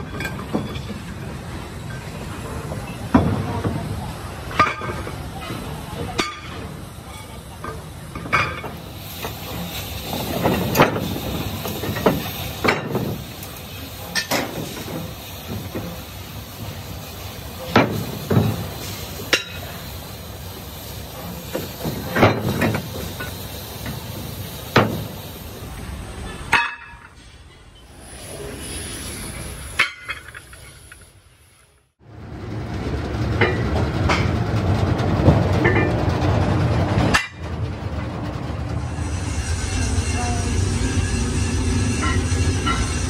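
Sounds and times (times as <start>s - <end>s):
steady hiss: 27.8s - 32.0s.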